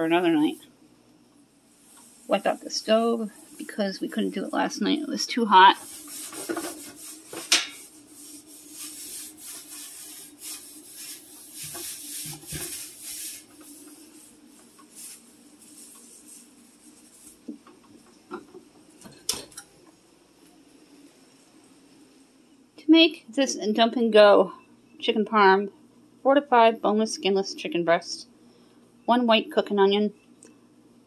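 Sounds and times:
scrubbing a stovetop: 0.0s - 0.7s, 1.7s - 19.6s
steady low hum: 0.0s - 31.0s.

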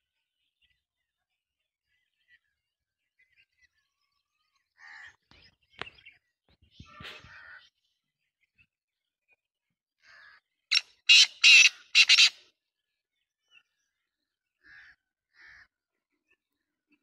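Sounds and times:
francolin harsh calls: 10.0s - 12.5s.

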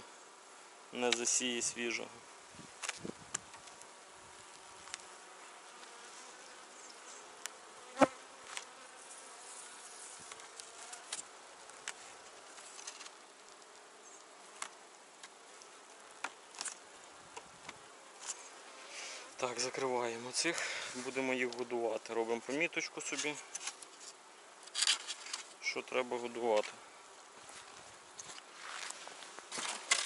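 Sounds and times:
bees buzzing: 0.0s - 21.7s.

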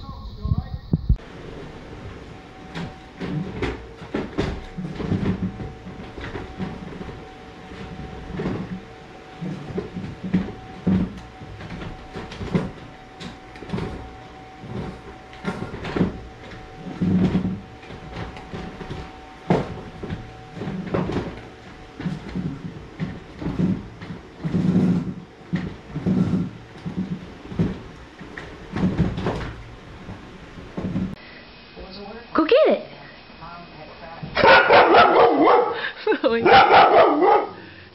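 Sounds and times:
knocks and thumps: 2.0s - 31.2s.

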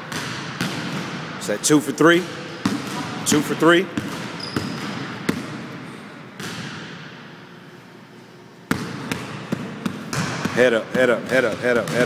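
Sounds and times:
basketball bouncing on hardwood floor: 0.1s - 1.1s, 4.0s - 5.6s, 8.7s - 12.0s.

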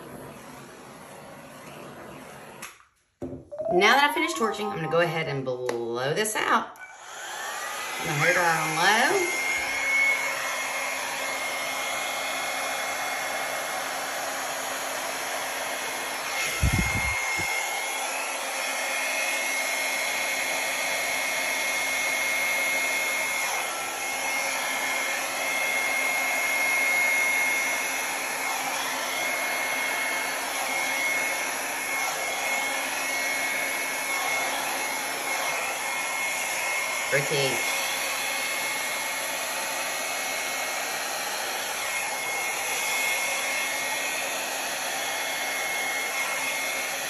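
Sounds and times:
hair dryer blowing air: 0.0s - 47.0s.

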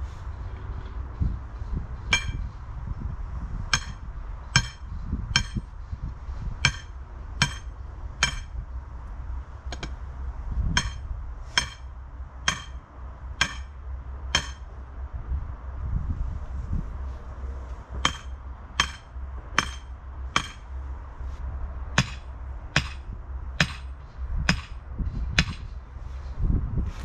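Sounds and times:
sledgehammer clanging on metal stake: 2.1s - 2.5s, 3.7s - 5.7s, 6.6s - 8.6s, 9.7s - 10.0s, 10.8s - 14.7s, 17.9s - 20.7s, 22.0s - 24.8s, 25.4s - 25.7s.

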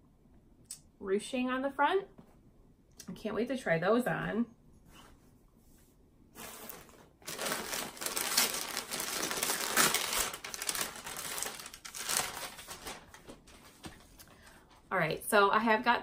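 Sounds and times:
packaging crinkling: 6.4s - 14.2s.

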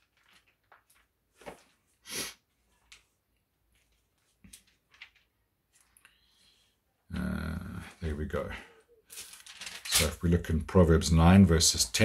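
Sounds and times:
person sniffing: 2.0s - 2.5s.

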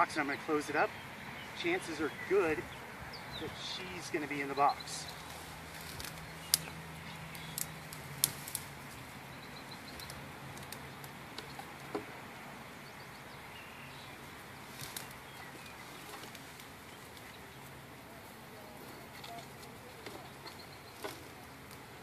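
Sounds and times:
dry twigs snapping: 5.2s - 9.1s, 9.8s - 12.1s, 14.6s - 17.7s.

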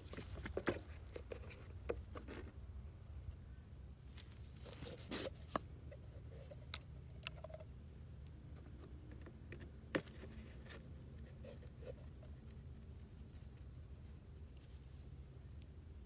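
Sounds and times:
low steady hum: 0.0s - 16.0s
plastic jar clicks and scrapes: 4.6s - 7.8s.

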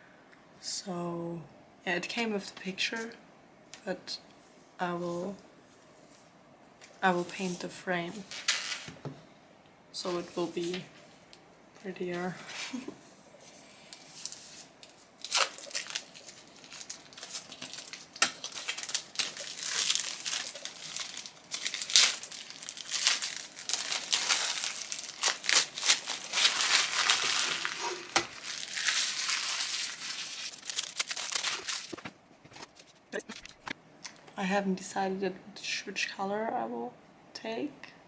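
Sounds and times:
plastic wrapping crinkling: 13.9s - 33.8s.

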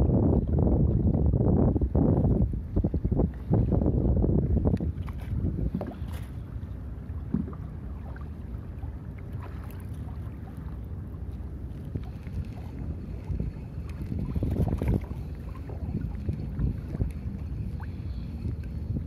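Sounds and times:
water lapping against a kayak: 0.0s - 19.0s
wind buffeting microphone: 0.0s - 19.0s.

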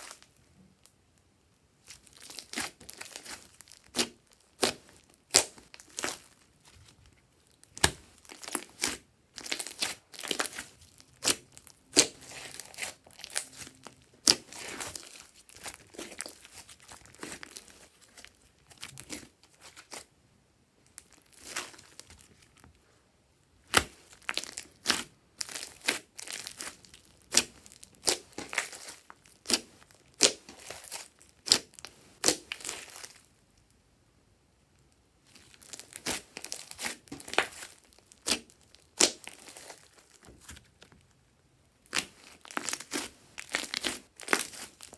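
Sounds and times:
slime squishing and popping: 7.6s - 20.0s, 23.6s - 33.2s, 35.4s - 40.4s, 41.8s - 44.9s.

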